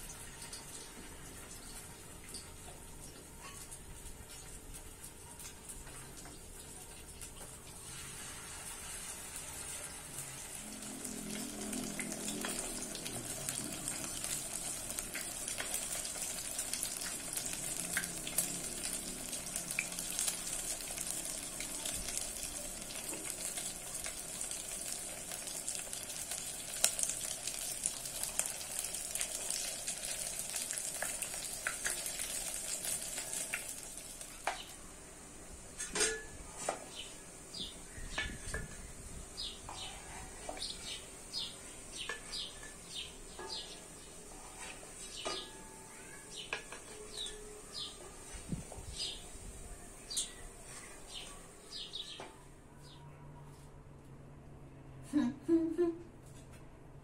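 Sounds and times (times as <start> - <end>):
food sizzling in hot oil: 4.4 - 39.7, 40.5 - 47.9.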